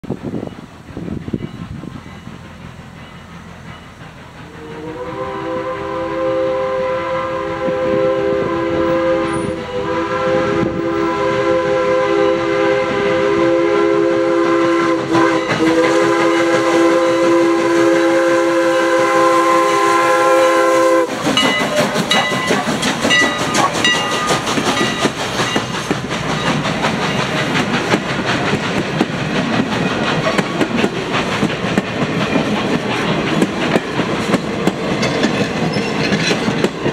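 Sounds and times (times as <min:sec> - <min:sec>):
train rail clatter: 0:00.0 - 0:36.9
steam whistle blast: 0:04.4 - 0:24.4.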